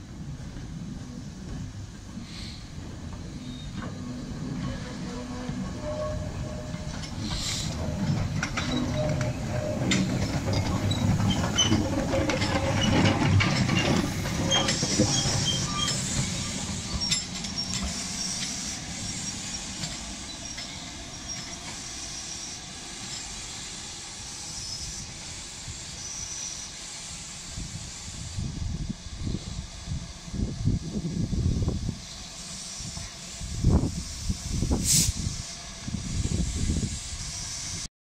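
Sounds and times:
steam hissing from cylinders: 0:00.0 - 0:37.9
running gear clanks and clicks: 0:06.8 - 0:18.6.

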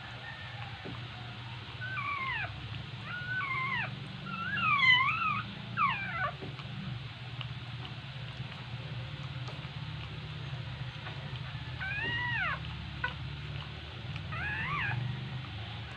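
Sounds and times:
newborn puppies crying: 0:01.6 - 0:06.6, 0:10.6 - 0:15.9.

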